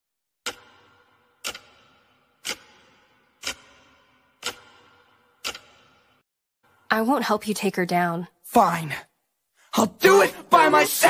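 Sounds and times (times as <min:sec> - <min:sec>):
sharp ticks: 0:00.4 - 0:06.2.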